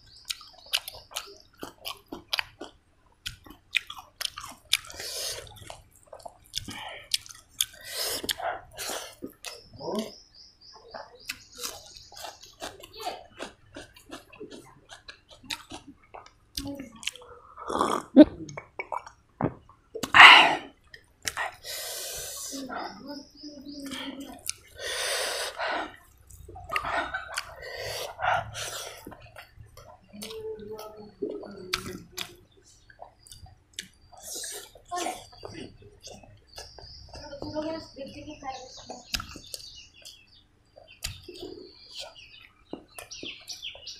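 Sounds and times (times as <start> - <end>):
chewing and lip smacking: 0.0 - 10.0, 10.9 - 22.7, 23.8 - 37.3, 38.7 - 43.9
fingers squishing rice and curry: 0.0 - 10.1, 10.9 - 17.4
fingers squishing food on plate: 10.9 - 22.7, 23.8 - 37.9, 38.8 - 43.9.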